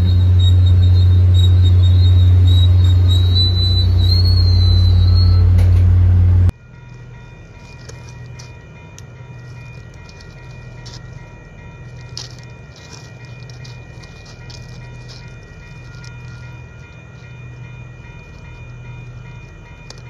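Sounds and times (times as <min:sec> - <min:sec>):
diesel locomotive engine droning: 0:00.0 - 0:20.0
faint steady high tones: 0:06.5 - 0:20.0.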